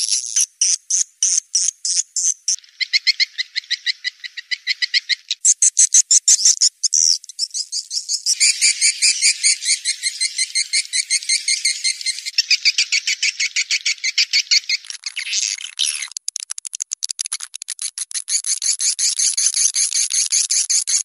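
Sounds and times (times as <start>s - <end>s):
swiftlets chirping: 5.4s - 17.3s.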